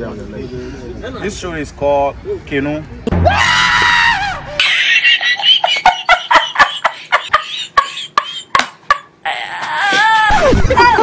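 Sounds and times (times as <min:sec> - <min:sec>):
high-pitched shriek: 0:03.2 - 0:04.6
high giggling laughter: 0:04.5 - 0:11.0.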